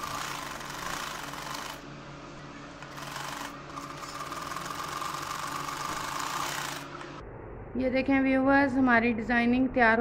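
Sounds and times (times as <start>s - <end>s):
sewing machine stitching: 0.0s - 1.8s, 2.8s - 7.0s.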